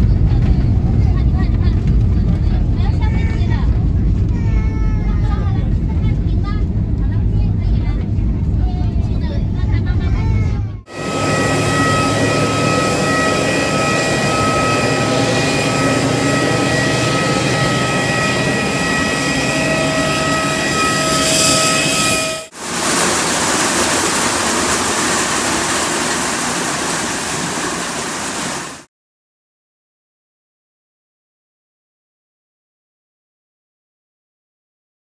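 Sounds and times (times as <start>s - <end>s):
low rumble: 0.0s - 28.3s
even rushing noise: 10.9s - 28.9s
jet engine whine: 10.9s - 28.9s.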